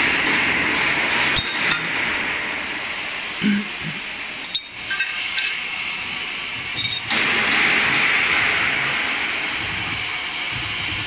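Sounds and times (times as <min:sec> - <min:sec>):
steady loud hiss: 0:00.0 - 0:11.0
steel tools clinking: 0:01.4 - 0:02.0, 0:04.4 - 0:05.6, 0:06.7 - 0:07.1.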